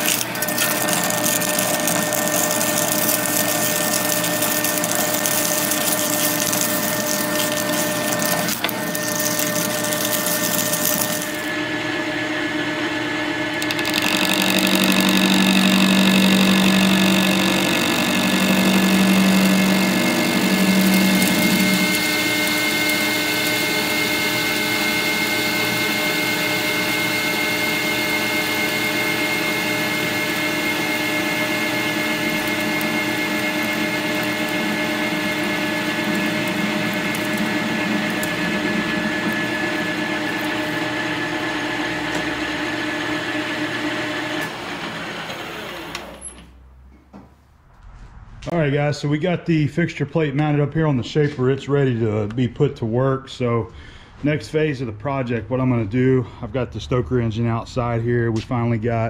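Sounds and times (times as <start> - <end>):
metal lathe whine and hum: 0.0 - 46.5
loud low hum: 47.5 - 49.9.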